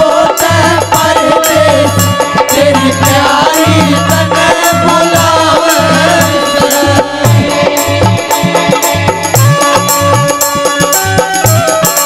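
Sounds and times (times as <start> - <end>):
jingling percussion: 0.0 - 12.0
low drum beats: 1.0 - 10.6
folk band music: 2.1 - 12.0.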